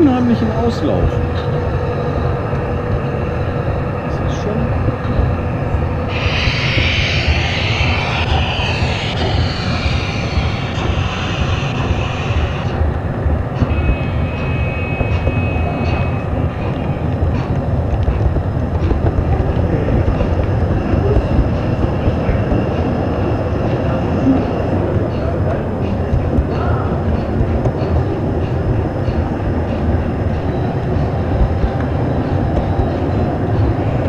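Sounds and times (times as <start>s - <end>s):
high whine: 0.0s - 34.0s
hiss: 6.1s - 12.9s.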